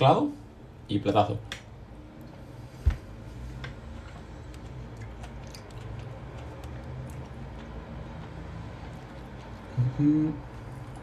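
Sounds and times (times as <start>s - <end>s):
man chewing food: 3.4s - 11.0s.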